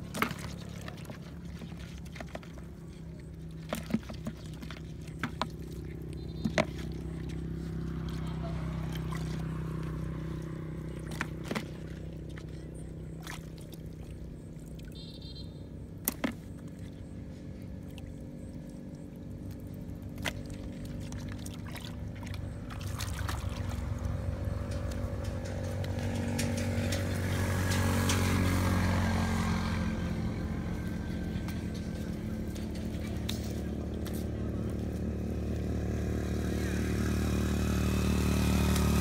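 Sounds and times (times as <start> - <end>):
small engine droning: 0.0 - 39.0
hands splashing in muddy water: 19.5 - 24.7.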